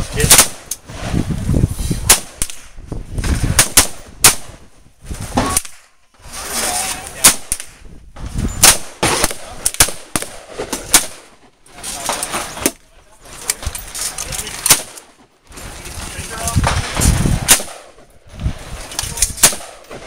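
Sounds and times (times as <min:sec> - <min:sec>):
rifle gunshots: 0:00.2 - 0:00.7, 0:02.0 - 0:02.7, 0:03.5 - 0:04.6, 0:07.2 - 0:07.8, 0:08.6 - 0:11.4, 0:14.6 - 0:15.1, 0:16.6 - 0:18.0, 0:19.3 - 0:20.0.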